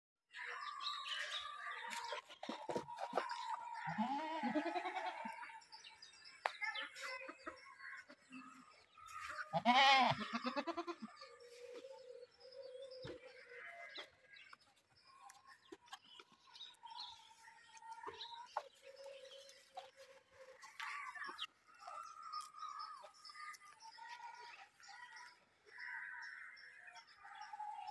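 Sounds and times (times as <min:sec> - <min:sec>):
goats bleating: 0:03.8 - 0:05.4, 0:09.5 - 0:11.2.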